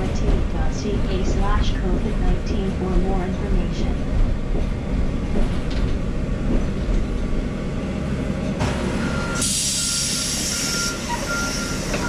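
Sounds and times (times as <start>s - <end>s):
bus engine rumbling: 0.0s - 12.0s
high warning beep: 9.0s - 11.8s.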